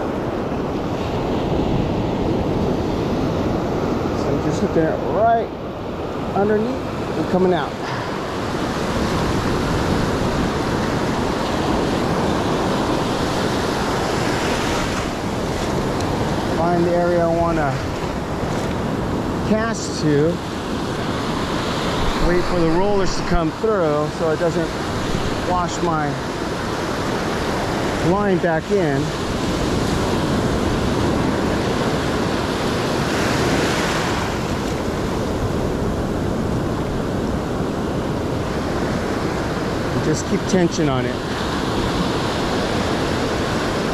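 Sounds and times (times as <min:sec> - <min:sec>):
wind buffeting microphone: 0:00.0 - 0:28.2
ocean surf breaking: 0:00.0 - 0:43.9.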